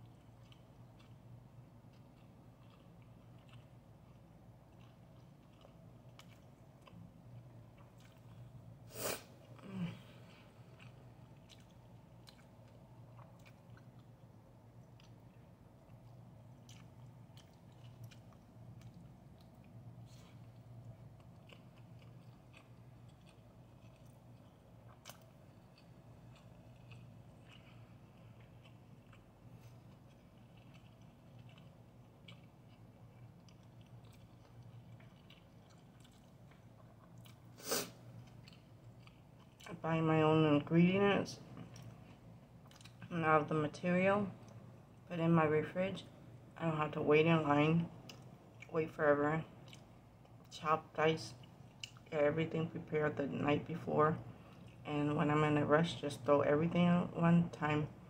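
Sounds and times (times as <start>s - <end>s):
person chewing food: 0.0s - 39.7s, 41.5s - 43.1s, 48.0s - 48.7s, 49.6s - 50.5s, 51.4s - 52.1s, 54.3s - 54.8s
low steady hum: 0.0s - 58.0s.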